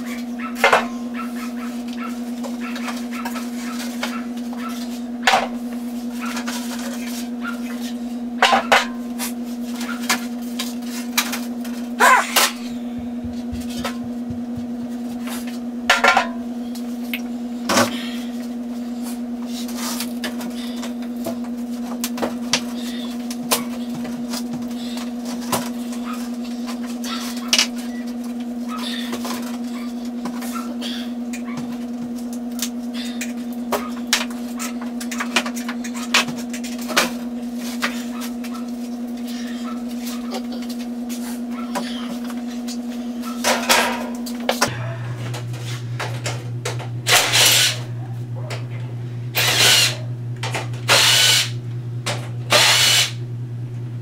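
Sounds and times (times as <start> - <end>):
low hum: 11.7 - 15.2, 44.1 - 54.0.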